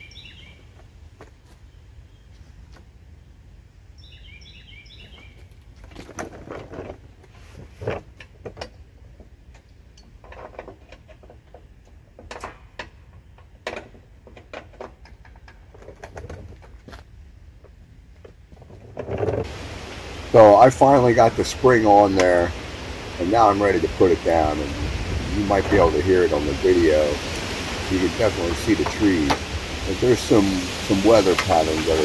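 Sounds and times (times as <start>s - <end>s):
bird chirping: 0.0s - 0.7s, 4.0s - 5.5s
wind rumble on microphone: 17.8s - 32.0s.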